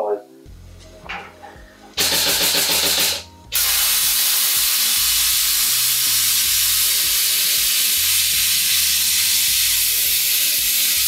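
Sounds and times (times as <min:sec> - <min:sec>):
rapid rattling buzz: 0:02.0 - 0:04.1
plasma arc hissing: 0:02.0 - 0:11.0.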